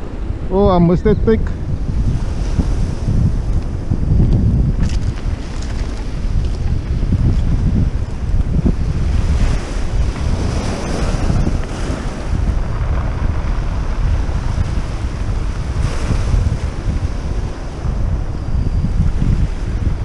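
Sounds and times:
wind buffeting microphone: 0:00.0 - 0:20.0
waves washing onto pebbles: 0:04.8 - 0:18.2.

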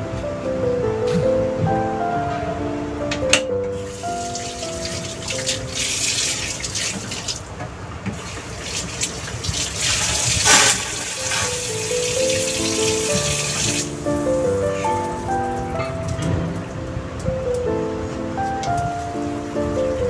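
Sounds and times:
background music: 0:00.0 - 0:06.8, 0:10.5 - 0:20.0
soup bubbling and hissing: 0:08.2 - 0:13.9.

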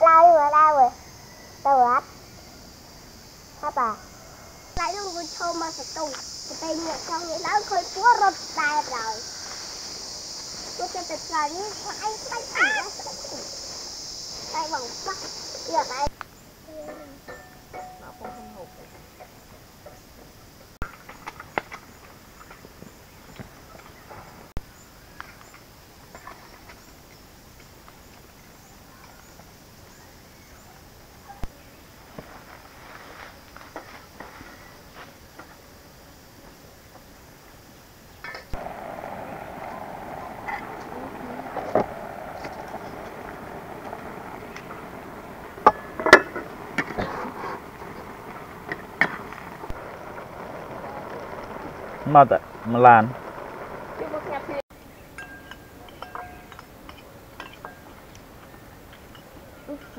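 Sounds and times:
steady background noise: 0:00.0 - 0:59.9
steady low background noise: 0:33.4 - 0:59.9.

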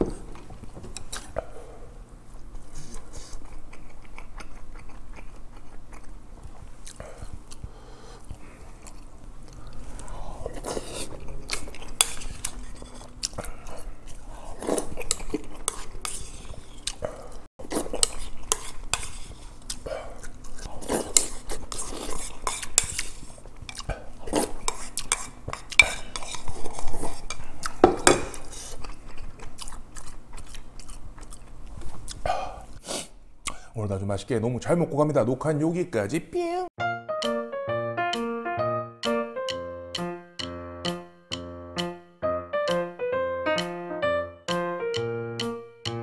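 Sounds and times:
person chewing: 0:00.1 - 0:01.7, 0:02.5 - 0:33.6.

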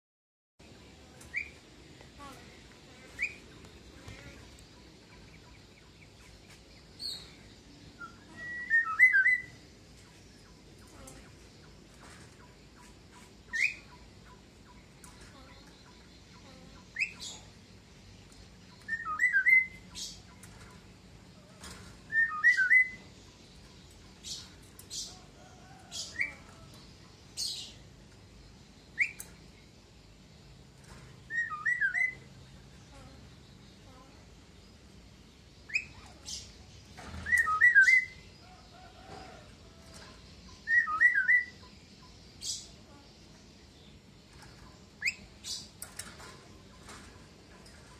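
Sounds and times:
myna bird calling: 0:00.8 - 0:17.6, 0:31.2 - 0:34.3, 0:40.0 - 0:45.8.

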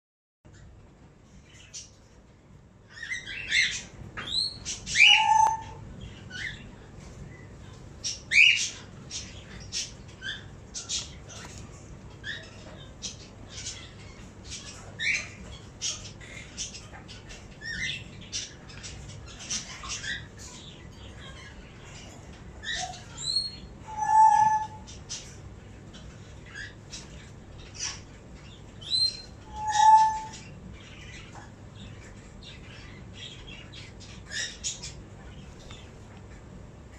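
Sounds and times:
parakeet chick squeaky chirps: 0:02.9 - 0:06.8, 0:12.1 - 0:35.0
parakeet chick squawks: 0:28.8 - 0:30.5.

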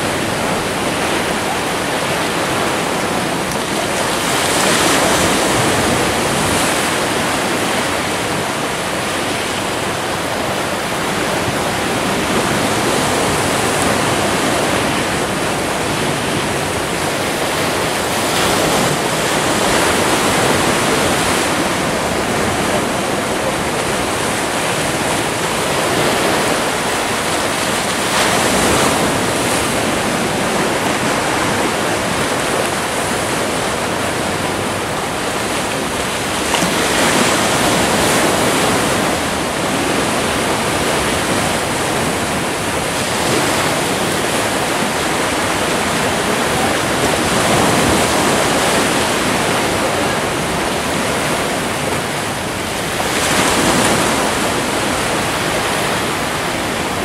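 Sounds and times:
sea surf breaking on rocks: 0:00.0 - 0:57.0.

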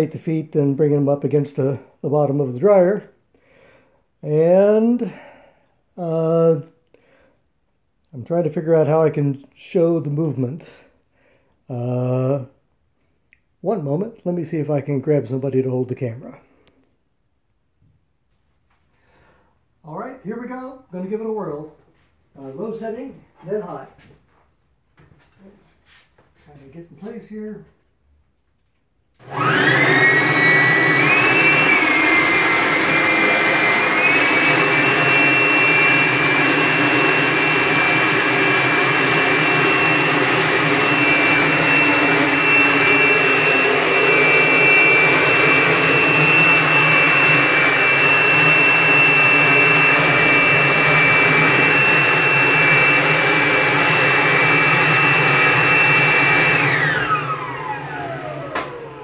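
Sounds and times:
leaf blower whining: 0:29.2 - 0:59.0.

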